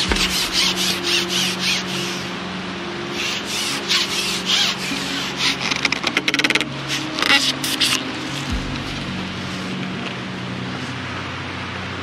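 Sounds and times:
fishing pole scraping: 0:00.0 - 0:02.3, 0:03.1 - 0:10.2
steady low hum: 0:00.0 - 0:12.0.

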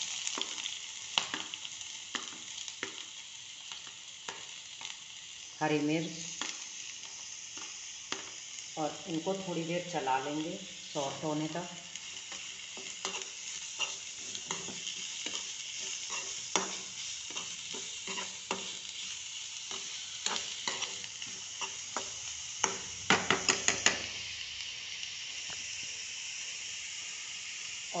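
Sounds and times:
vegetables sizzling in oil: 0:00.0 - 0:28.0
utensil scraping a pan: 0:12.8 - 0:18.8
sharp knocks on a pan: 0:22.7 - 0:24.0.

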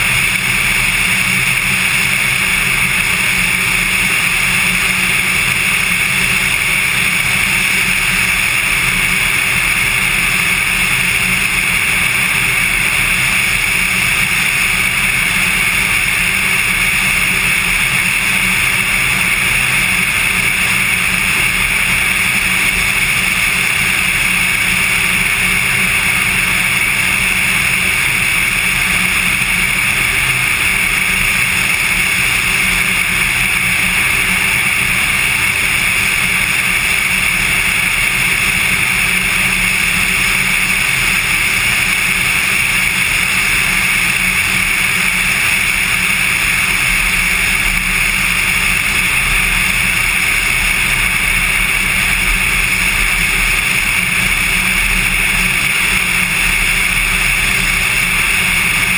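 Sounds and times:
light aircraft engine droning: 0:00.0 - 0:58.9.

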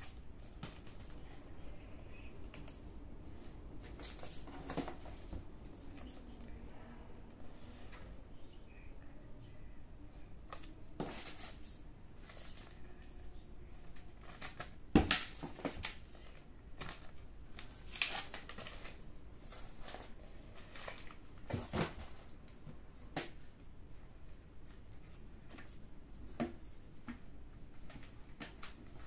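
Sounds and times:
packaging rustling and crinkling: 0:14.2 - 0:22.3.

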